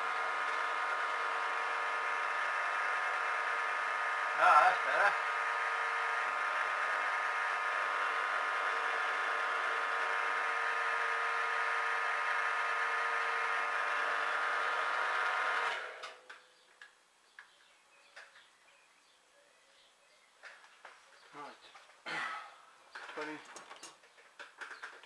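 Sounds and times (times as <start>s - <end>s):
milling machine whine: 0.0s - 16.1s.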